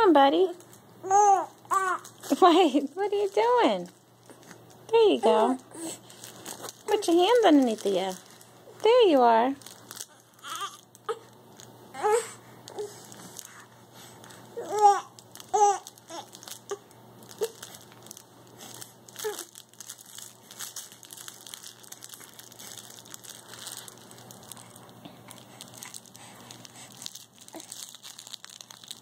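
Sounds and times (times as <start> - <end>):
toy crinkling and rustling: 0.4 - 29.0
baby babbling: 1.0 - 2.1, 10.4 - 11.2, 12.0 - 12.9, 14.6 - 16.8
baby cooing: 1.0 - 2.1, 10.4 - 11.3, 11.9 - 12.9, 14.6 - 16.8.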